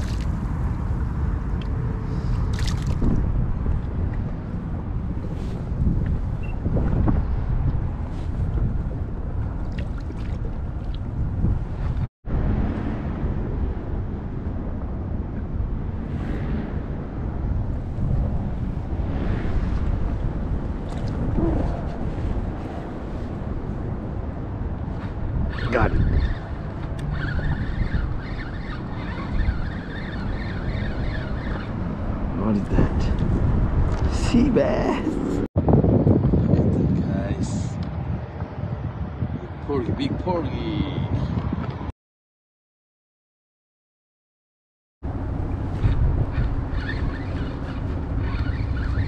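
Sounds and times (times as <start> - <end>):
wind rumbling on microphone: 0.0 - 41.9, 45.0 - 49.0
fishing reel whirring: 25.6 - 31.7, 45.8 - 49.0.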